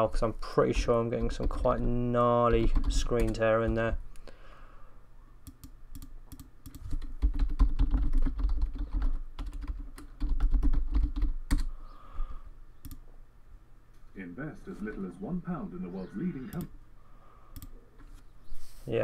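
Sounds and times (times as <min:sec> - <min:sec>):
computer keyboard typing: 0:00.7 - 0:04.0, 0:05.5 - 0:11.7.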